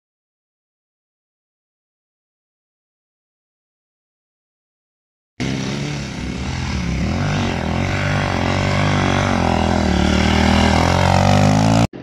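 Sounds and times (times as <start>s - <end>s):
dirt bike engine revving: 5.4s - 12.0s.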